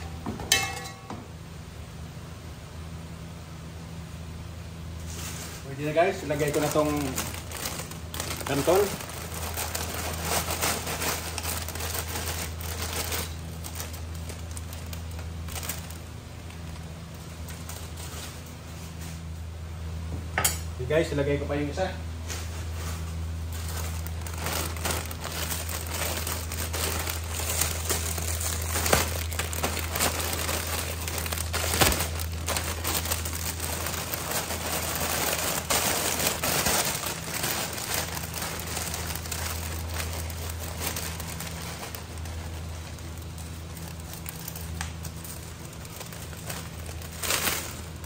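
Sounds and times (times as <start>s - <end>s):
steady low hum: 0.0s - 48.0s
plastic bag crinkling: 5.0s - 19.3s, 22.3s - 48.0s.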